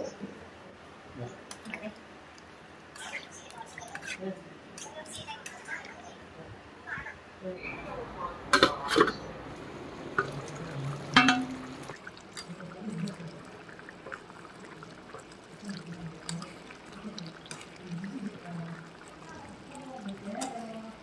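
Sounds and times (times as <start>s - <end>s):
curry bubbling in pan: 9.8s - 21.0s
metal lid and spatula clanking on pan: 11.1s - 11.8s.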